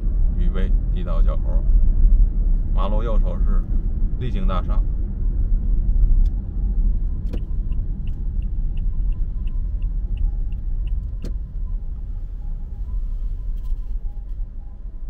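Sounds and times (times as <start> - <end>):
car road and engine rumble: 0.0 - 15.0
turn signal ticking: 5.0 - 15.0.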